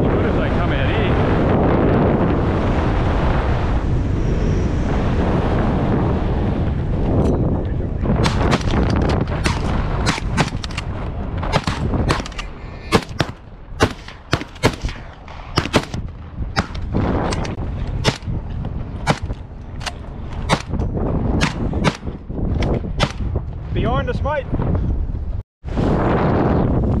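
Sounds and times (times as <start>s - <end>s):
rapid gunshots: 8.2s - 18.3s, 19.0s - 19.4s, 21.4s - 22.2s, 23.0s - 23.3s.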